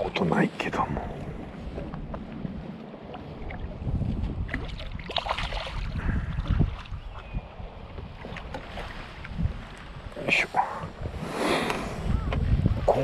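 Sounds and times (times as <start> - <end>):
wind buffeting microphone: 0.0 - 13.0
landing net splashing in water: 4.5 - 5.9.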